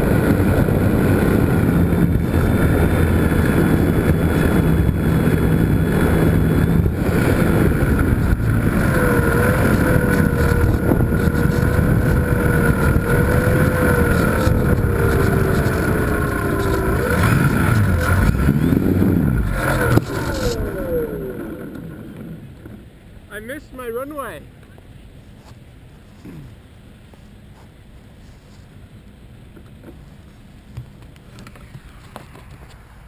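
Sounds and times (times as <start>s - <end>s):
wind rush on microphone: 0.0s - 22.0s
model airplane motor whine: 0.0s - 22.5s.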